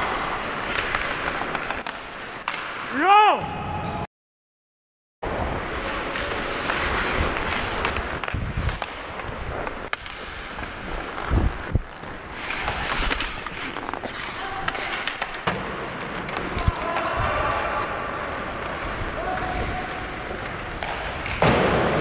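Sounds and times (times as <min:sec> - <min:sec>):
skates scraping on ice: 0:00.0 - 0:03.0, 0:05.3 - 0:22.0
hockey stick clacks: 0:00.3 - 0:02.9, 0:06.0 - 0:10.8, 0:11.9 - 0:17.1, 0:20.3 - 0:21.8.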